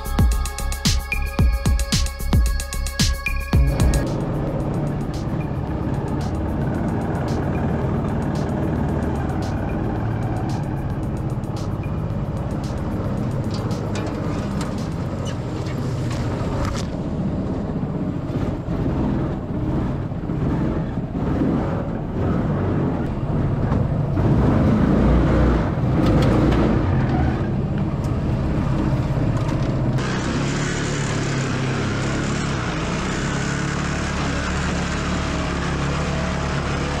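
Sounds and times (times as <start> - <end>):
small engine running: 30.0 - 37.0.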